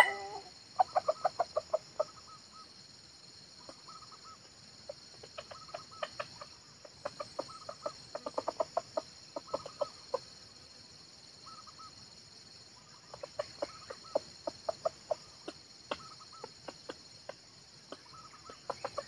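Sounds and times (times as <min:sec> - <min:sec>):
junglefowl clucking: 0:00.0 - 0:02.7, 0:03.6 - 0:10.4, 0:12.8 - 0:19.0
trilling calls: 0:00.0 - 0:02.7, 0:05.4 - 0:08.8, 0:12.8 - 0:16.8, 0:17.9 - 0:19.0.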